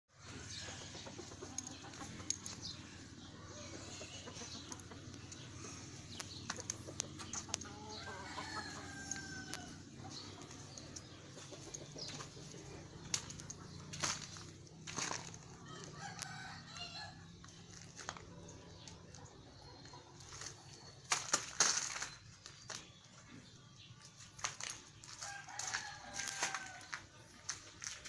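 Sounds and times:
chickens clucking: 0.2 - 28.0
rooster crowing: 7.7 - 9.9, 15.6 - 17.2, 25.2 - 27.0.

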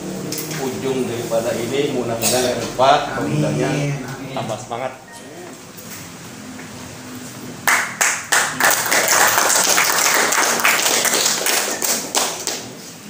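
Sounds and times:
hands clapping: 7.6 - 12.9.

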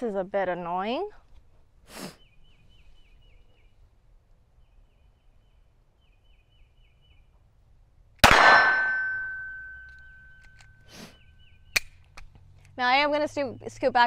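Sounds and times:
pistol shot: 8.2 - 9.5
ringing metallic clang: 8.2 - 10.4.

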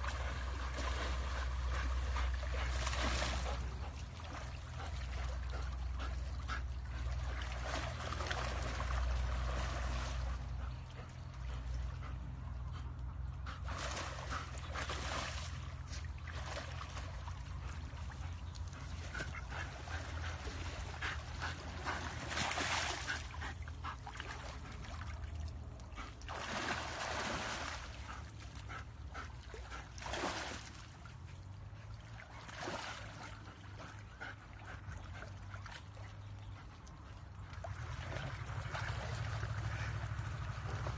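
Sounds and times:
dog splashing through water: 0.0 - 12.1, 13.6 - 31.2, 32.0 - 36.0, 37.4 - 40.9.

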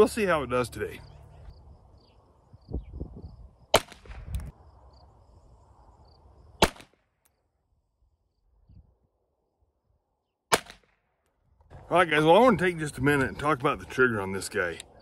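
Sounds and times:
pistol shots: 3.7 - 4.2, 6.6 - 7.0, 10.5 - 11.0.

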